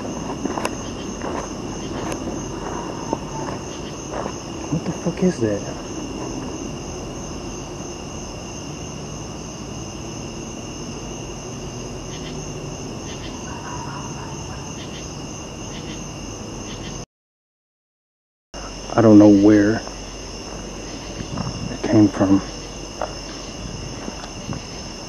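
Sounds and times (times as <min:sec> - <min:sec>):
crickets chirping: 0:00.0 - 0:17.1, 0:18.6 - 0:25.0.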